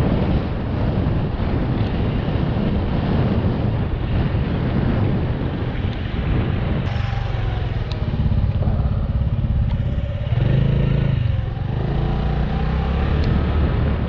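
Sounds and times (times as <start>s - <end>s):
rushing noise: 6.8s - 14.0s
small motorbike engine running: 6.9s - 14.0s.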